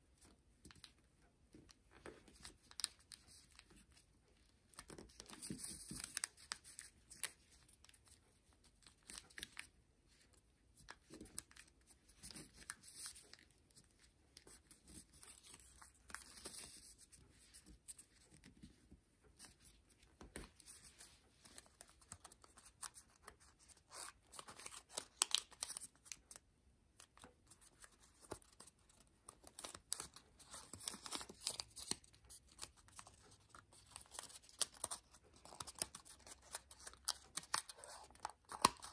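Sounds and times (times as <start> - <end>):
paper crinkle: 27.1 - 38.9
paper rustling and creasing: 27.1 - 38.9.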